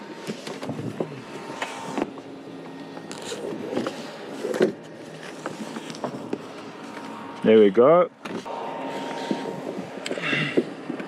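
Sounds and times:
low steady hum: 0:00.0 - 0:11.0
rope scraping: 0:00.2 - 0:07.5.

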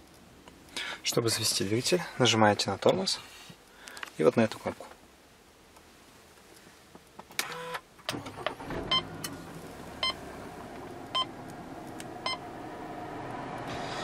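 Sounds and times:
car engine starting and idling: 0:07.4 - 0:14.0.

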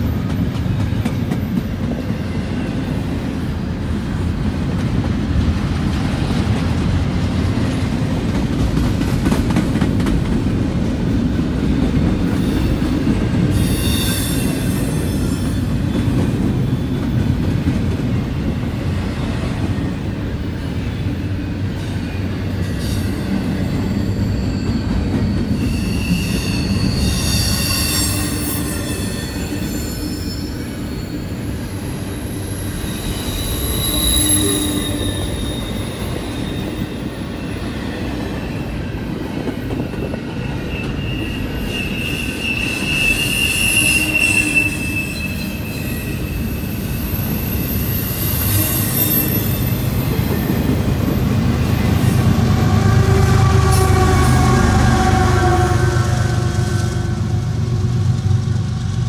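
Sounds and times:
steel wheels rumbling on rail: 0:00.0 - 0:59.0
high-pitched wheel squeal: 0:13.5 - 0:15.7, 0:22.7 - 0:37.8, 0:40.4 - 0:50.6.

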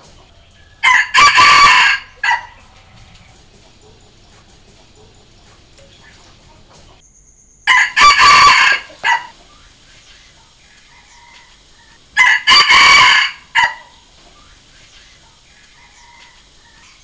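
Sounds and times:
rooster crowing: 0:00.2 - 0:05.4, 0:07.6 - 0:09.5, 0:10.8 - 0:14.0, 0:15.5 - 0:17.0.

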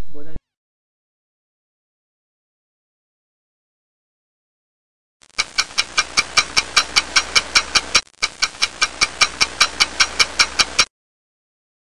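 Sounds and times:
clock ticking fast: 0:05.2 - 0:10.9.

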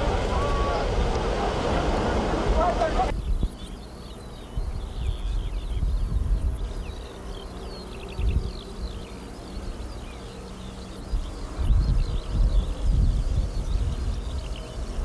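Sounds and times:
birds and insects chirping: 0:00.0 - 0:15.0.

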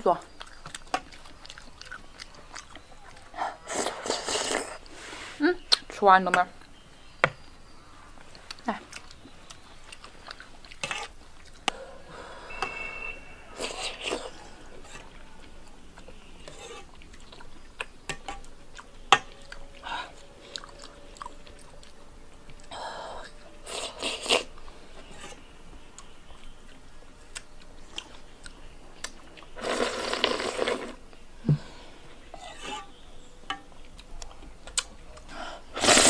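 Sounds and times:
person slurping soup: 0:03.7 - 0:05.4, 0:29.6 - 0:31.0, 0:35.8 - 0:36.0.

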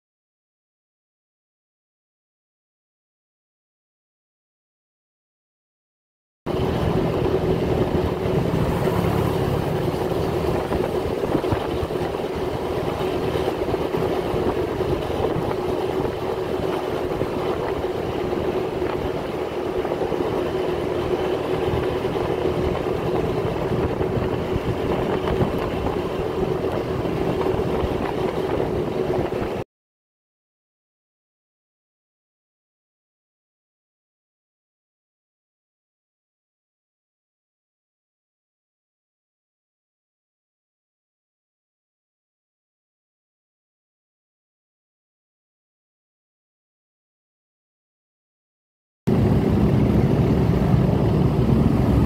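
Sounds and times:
road and rushing noise: 0:06.5 - 0:29.6, 0:49.1 - 0:52.0
scooter engine hum: 0:06.5 - 0:29.6, 0:49.1 - 0:52.0.

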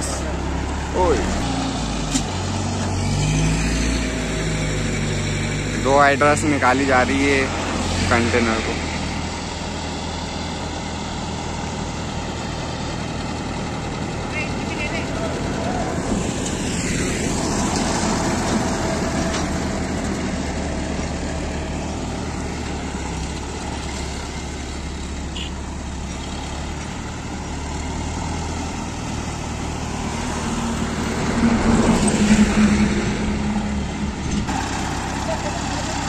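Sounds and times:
diesel engine idling: 0:00.0 - 0:03.2, 0:04.0 - 0:36.0
engine humming passing close: 0:00.0 - 0:36.0
road vehicles passing: 0:00.0 - 0:36.0.

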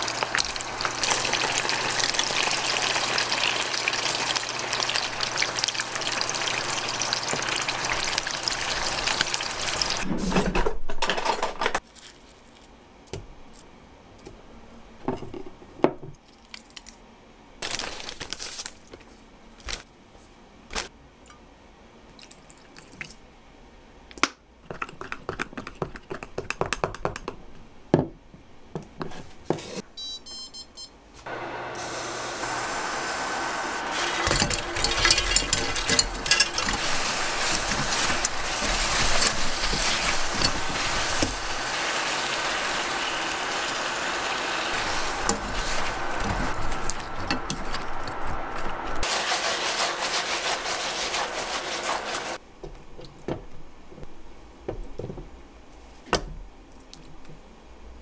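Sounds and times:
chicken deep-frying in oil: 0:00.0 - 0:10.1, 0:31.3 - 0:52.4.

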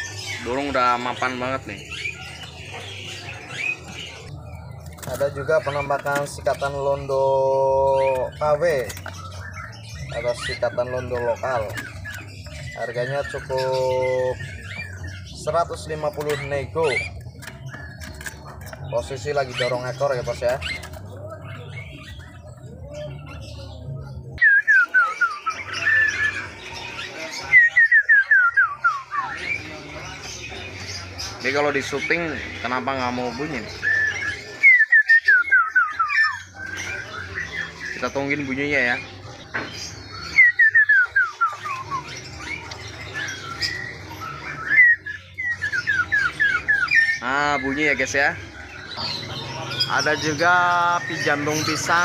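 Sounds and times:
songbird whistling: 0:24.4 - 0:29.7, 0:33.8 - 0:38.1, 0:39.9 - 0:48.0.

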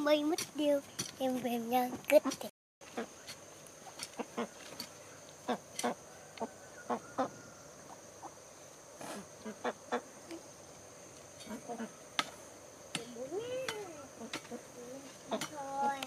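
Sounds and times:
fowl calling: 0:02.8 - 0:03.3, 0:04.1 - 0:08.4, 0:09.4 - 0:10.2, 0:11.4 - 0:12.0.

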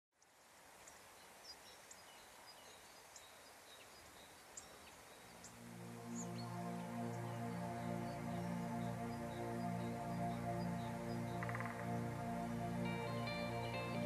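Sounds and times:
faint outdoor background noise: 0:00.1 - 0:14.0
soft ambient music: 0:04.6 - 0:14.0
high bird chirps: 0:11.2 - 0:11.9.

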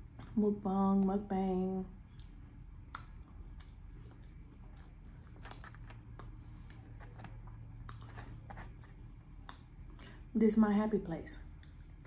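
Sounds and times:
person chewing food: 0:02.0 - 0:10.2.

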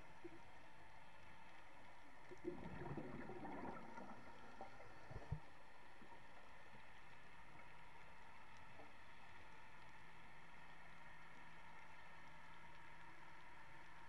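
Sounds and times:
faint underwater hiss: 0:00.0 - 0:14.0
scuba bubbles gurgling: 0:02.3 - 0:06.3.

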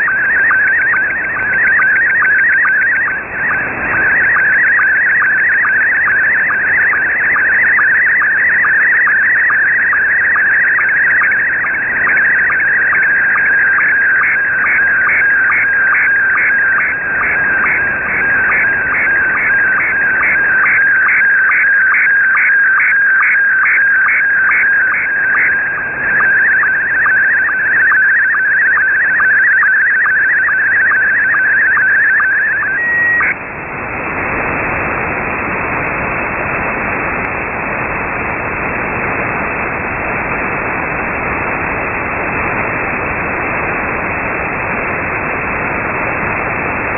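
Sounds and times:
warbling buzzing signal tone: 0:00.0 - 0:33.4
radio static: 0:00.0 - 0:46.9.

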